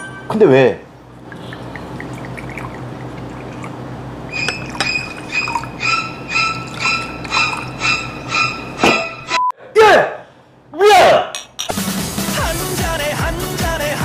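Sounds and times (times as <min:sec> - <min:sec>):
liquid pouring into glasses: 0:01.0 - 0:05.8, 0:06.4 - 0:07.8.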